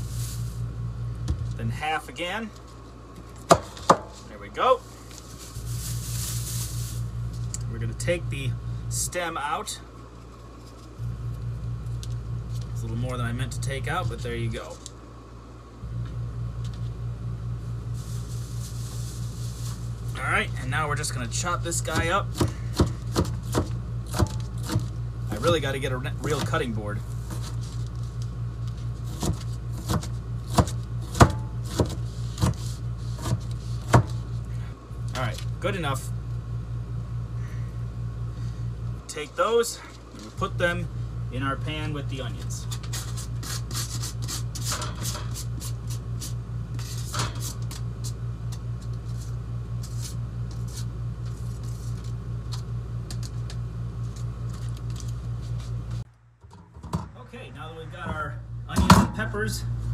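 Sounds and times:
throbbing low hum: 0.0s - 1.8s, 4.8s - 9.2s, 10.7s - 14.5s, 57.2s - 59.9s
steady low hum: 0.0s - 59.9s.

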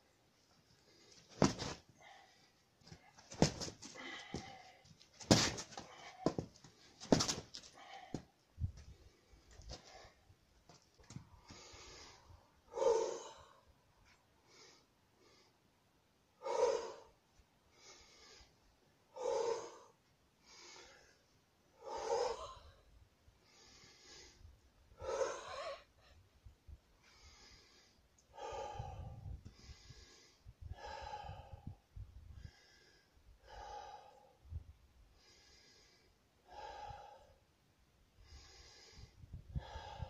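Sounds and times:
man breathing forcefully: 3.3s - 8.3s, 38.2s - 40.0s.

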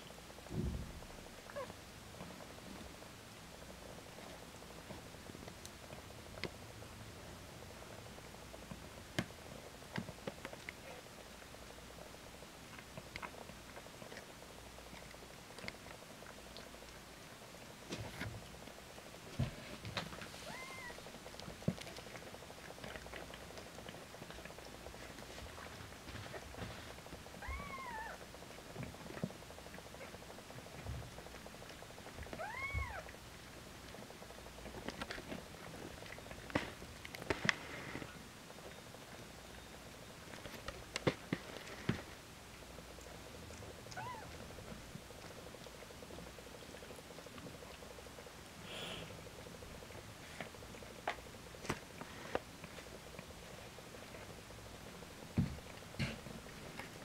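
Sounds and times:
cat licking and chewing: 3.4s - 57.0s
cat mewing: 20.4s - 21.0s, 27.4s - 28.2s, 32.4s - 33.0s, 43.9s - 44.4s.

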